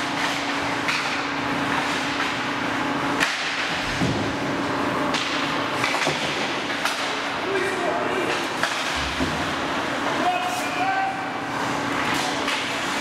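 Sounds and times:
hockey sticks and puck knocking: 5.1s - 7.2s.

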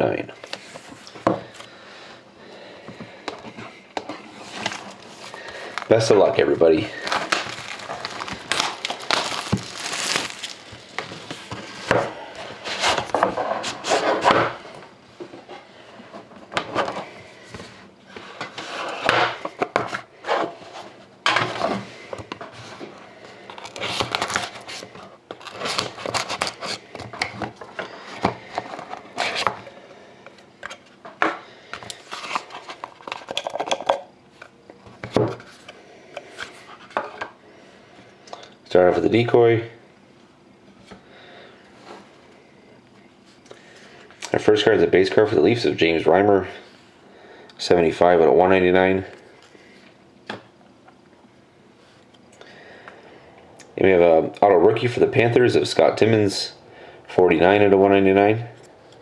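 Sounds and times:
plastic wrap tearing and crinkling: 4.4s - 6.2s, 6.9s - 11.9s, 23.5s - 26.8s
cards being handled: 4.4s - 12.0s.

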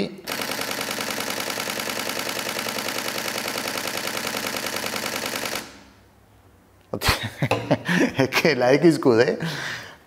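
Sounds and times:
camera shutter burst: 0.3s - 5.9s
man laughing: 7.0s - 8.6s.

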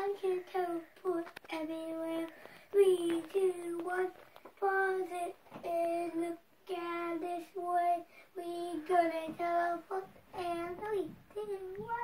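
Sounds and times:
boy singing: 0.0s - 12.0s.

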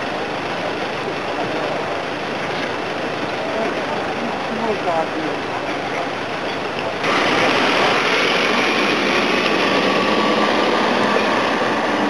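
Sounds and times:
tow truck engine idling: 0.0s - 12.0s.

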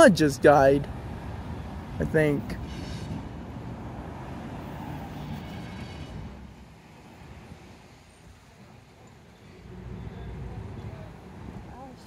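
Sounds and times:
freight train cars rolling: 2.2s - 11.2s.

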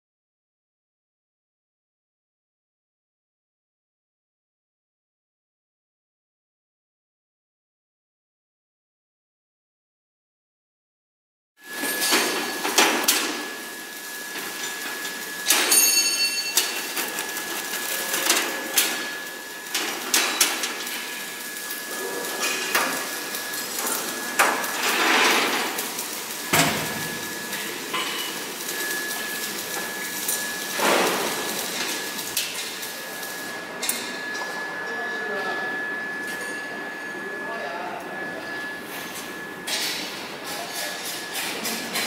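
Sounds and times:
steady high whine: 22.8s - 40.4s
metal knocks and clanks: 26.5s - 27.3s.

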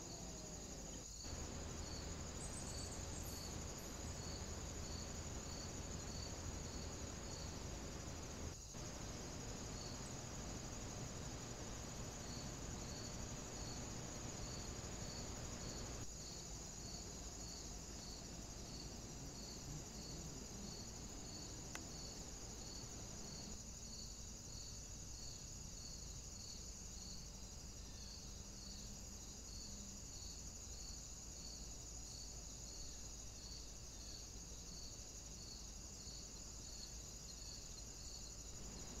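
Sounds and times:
insect high-pitched trill: 0.0s - 25.4s
faint hiss: 0.0s - 39.0s
insect short chirps: 1.0s - 16.1s.

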